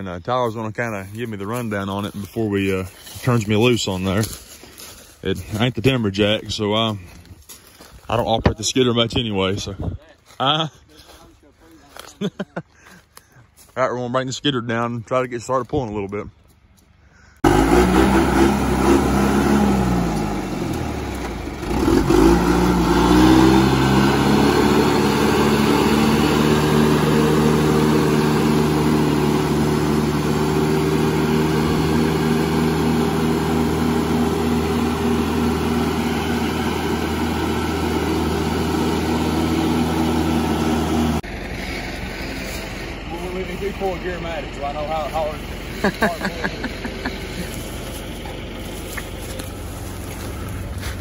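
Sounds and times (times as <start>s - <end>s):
diesel engine running: 0.0s - 51.0s.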